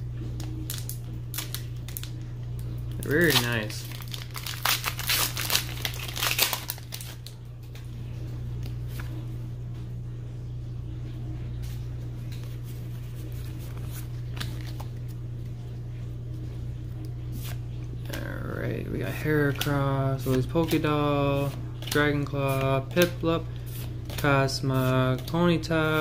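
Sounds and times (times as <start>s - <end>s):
steady low hum: 0.0s - 26.0s
foil wrapper crinkling: 0.4s - 7.3s, 13.4s - 14.9s.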